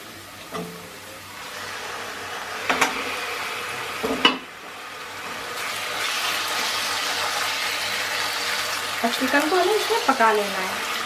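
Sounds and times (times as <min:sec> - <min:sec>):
chicken sizzling in hot oil: 0:00.0 - 0:11.0
sharp knocks against pan: 0:04.0 - 0:04.4.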